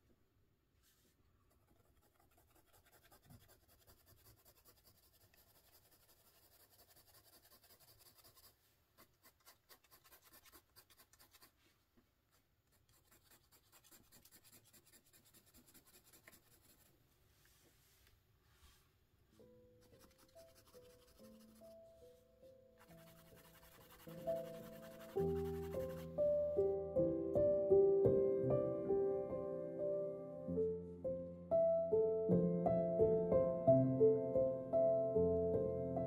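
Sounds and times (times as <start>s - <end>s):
pencil scratching on paper: 1.5s - 11.7s, 12.7s - 17.0s, 19.8s - 21.9s, 22.8s - 26.2s.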